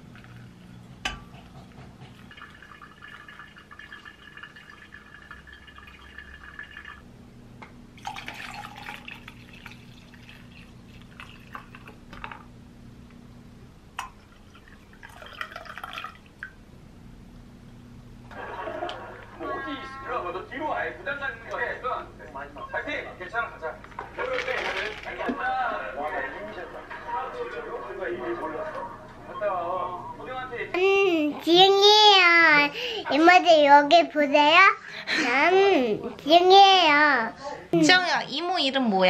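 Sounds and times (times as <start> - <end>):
coffee pouring into mug: 2.1 - 7.0, 8.0 - 12.4, 14.0 - 16.5
hot water trickling into dripper: 2.1 - 7.0, 8.0 - 12.4, 14.0 - 16.6
coffee pouring over ice: 2.2 - 7.0, 8.0 - 12.0, 14.3 - 16.3.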